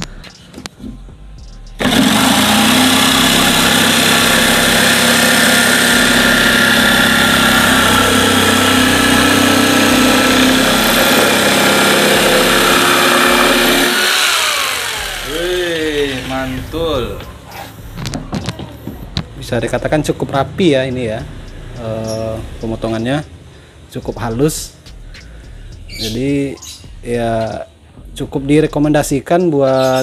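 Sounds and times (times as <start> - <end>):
jigsaw cutting plywood: 1.8 - 16.6
jigsaw motor winding down: 1.8 - 16.8.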